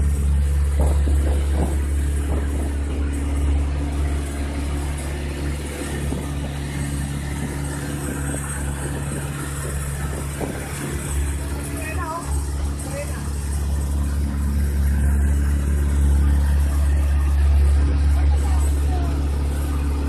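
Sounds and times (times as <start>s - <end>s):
boat engine droning: 0.0s - 20.0s
water splashing along hull: 0.0s - 20.0s.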